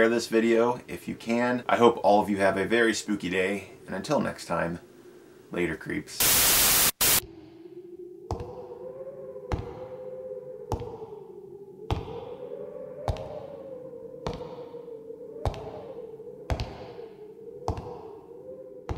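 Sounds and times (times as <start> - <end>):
wavering drone tone: 7.2 - 18.9.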